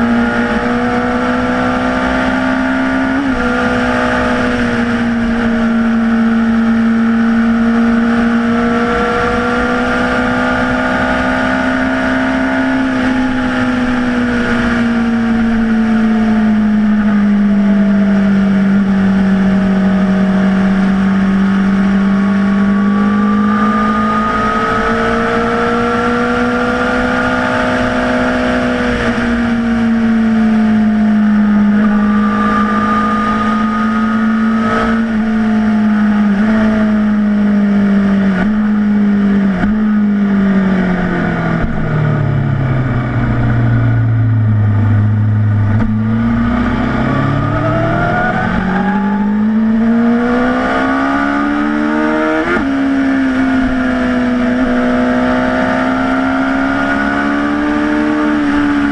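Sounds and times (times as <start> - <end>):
motorcycle engine cruising: 0.0 - 58.9.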